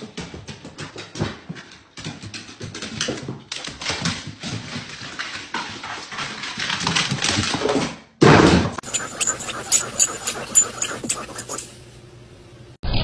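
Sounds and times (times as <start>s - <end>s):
dog claws on wooden stairs: 8.8s - 11.7s.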